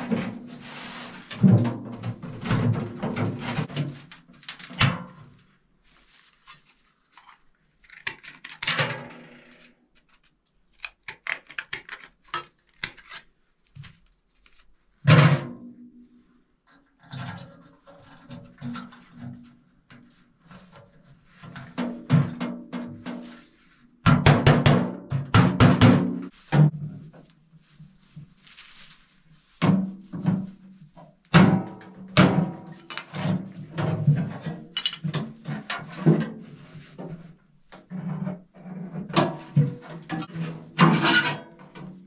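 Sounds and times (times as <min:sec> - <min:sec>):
metal clanks and scrapes: 0:00.0 - 0:05.4, 0:17.0 - 0:23.6, 0:29.6 - 0:42.0.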